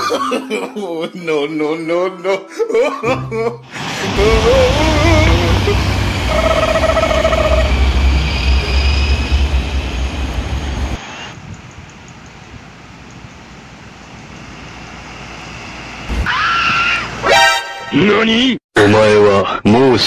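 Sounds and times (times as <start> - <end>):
road noise: 3.7 - 17.7
diesel truck engine rumbling past: 3.8 - 11.0
steady tone: 4.0 - 11.0.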